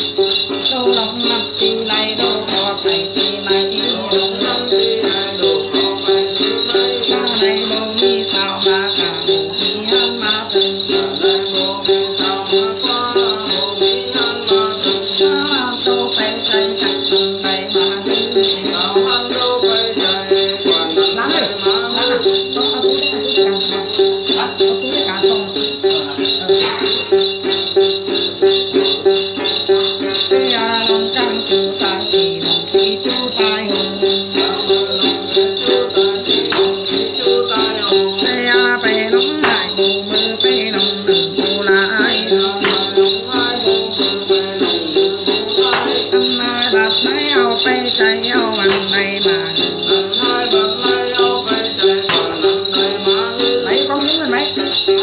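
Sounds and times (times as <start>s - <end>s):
gourd lute playing: 0.0s - 55.0s
jingle bells shaken: 0.0s - 55.0s
woman singing a chant: 0.0s - 55.0s.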